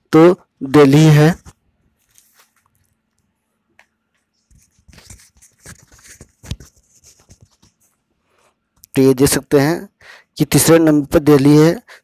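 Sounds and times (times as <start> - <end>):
rustling: 1.3 - 3.3, 4.1 - 8.6.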